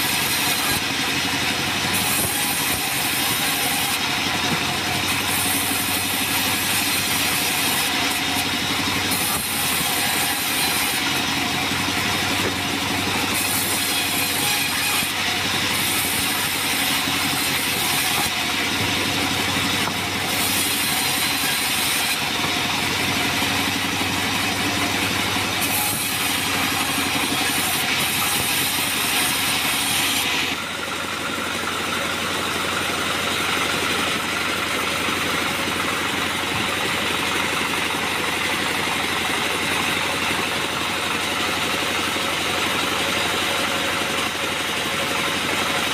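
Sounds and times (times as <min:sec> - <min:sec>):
bandsaw sawmill running: 0:00.0 - 0:45.9.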